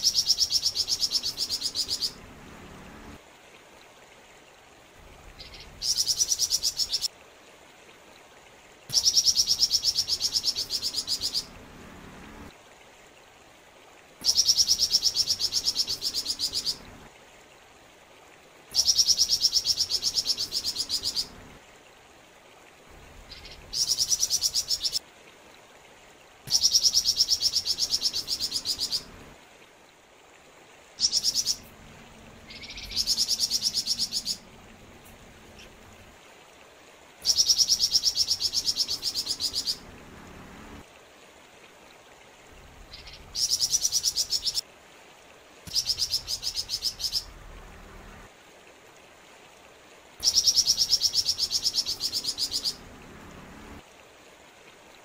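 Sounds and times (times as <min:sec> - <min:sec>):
stream trickling: 0:00.0 - 0:55.0
bird trilling: 0:32.5 - 0:34.4.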